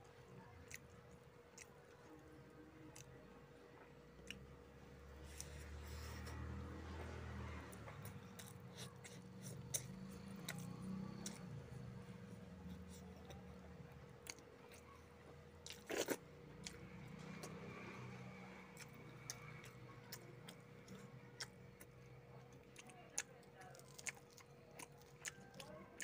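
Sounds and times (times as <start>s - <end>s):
chewing and mouth clicks: 0.4s - 3.2s, 3.8s - 4.5s, 5.2s - 15.0s, 15.6s - 26.0s
crunch: 15.6s - 17.5s, 18.8s - 26.0s.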